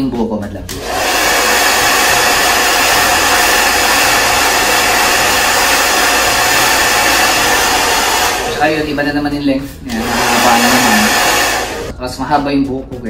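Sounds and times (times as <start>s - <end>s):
hair dryer running: 0.7s - 9.0s, 9.9s - 11.9s.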